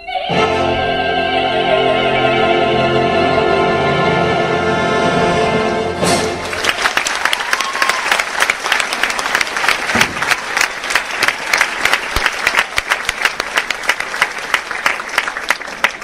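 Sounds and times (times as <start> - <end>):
audience clapping: 6.1 - 16.0.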